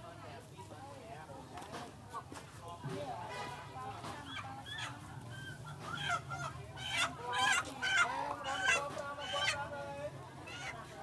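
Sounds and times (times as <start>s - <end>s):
chicken squawking in distress: 4.3s - 9.6s.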